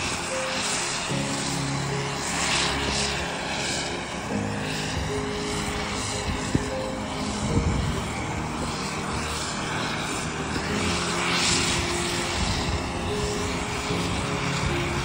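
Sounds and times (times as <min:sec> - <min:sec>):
jet engines rushing hiss: 0:00.0 - 0:15.0.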